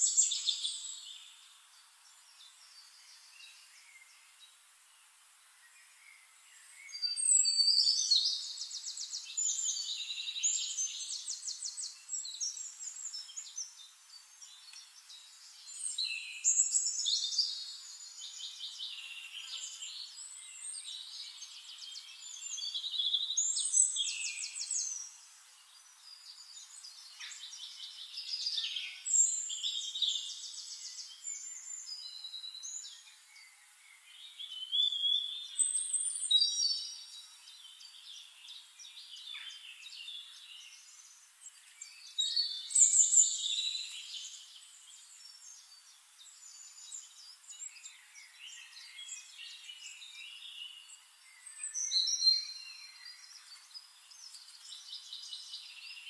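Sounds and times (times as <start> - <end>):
songbirds singing: 0.0 - 56.0.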